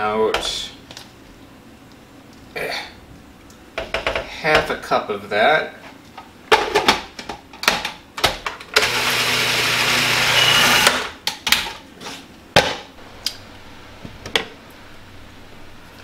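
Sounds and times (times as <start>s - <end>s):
food processor motor chopping: 8.8s - 11.1s.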